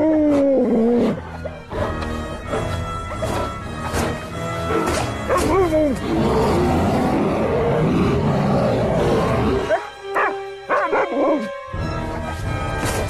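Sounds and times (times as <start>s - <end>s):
dramatic film score: 0.0s - 13.0s
dog barking: 5.3s - 5.7s, 9.7s - 11.4s.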